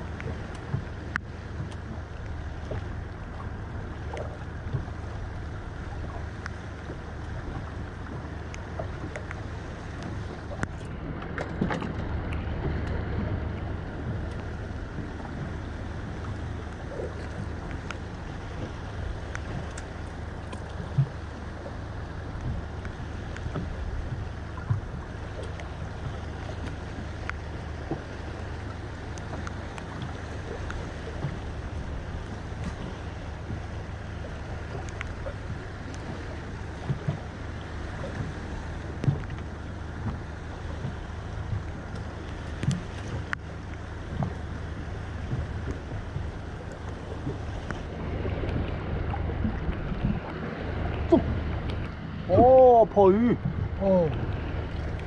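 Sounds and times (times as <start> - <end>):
water washing around boat: 0.0 - 55.0
wind rumble on microphone: 0.0 - 55.0
faint sharp ticks: 0.1 - 3.5, 6.4 - 13.0, 16.2 - 21.2, 22.3 - 31.5, 34.7 - 36.2, 37.9 - 40.2, 40.8 - 44.5, 45.2 - 50.3.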